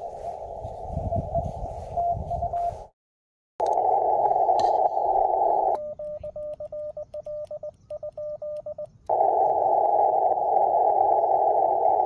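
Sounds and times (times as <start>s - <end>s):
morse code beeps: 1.7s - 2.9s, 5.6s - 11.6s.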